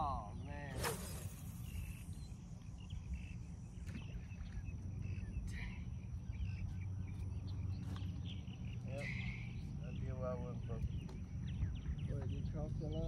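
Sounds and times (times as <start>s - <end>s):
faint bird chirps: 0.0s - 13.0s
wind rumbling on microphone: 10.6s - 12.4s.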